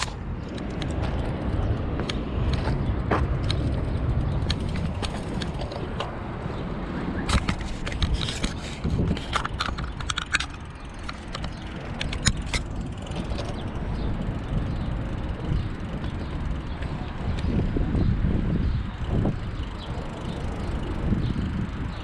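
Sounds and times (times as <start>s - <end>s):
bicycle tyre noise: 0.0s - 22.0s
wind rumble on microphone: 0.0s - 22.0s
rattling clicks: 3.4s - 6.2s, 7.2s - 14.1s.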